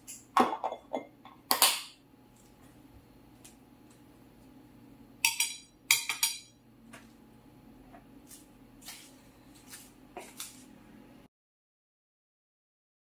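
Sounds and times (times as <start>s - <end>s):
metal spoon clinking on plate: 5.2s - 6.6s.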